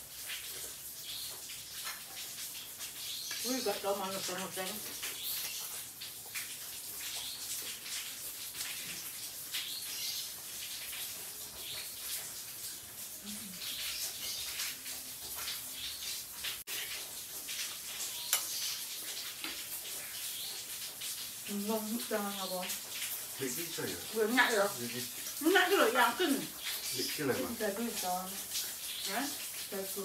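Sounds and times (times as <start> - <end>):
steady hiss: 0.0 - 30.0.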